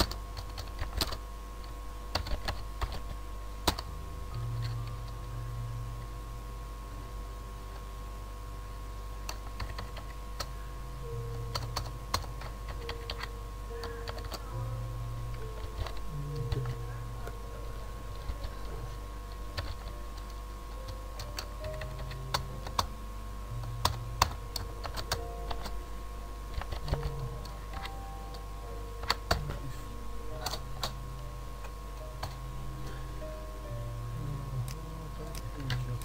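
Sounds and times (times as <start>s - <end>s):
keyboard typing clicks: 0.0s - 5.2s, 9.2s - 10.5s, 11.3s - 14.4s, 15.3s - 17.4s, 19.3s - 22.9s, 23.6s - 25.8s, 26.5s - 28.4s, 29.0s - 29.6s, 30.4s - 31.0s, 32.0s - 32.4s
low electrical hum: 0.0s - 36.0s.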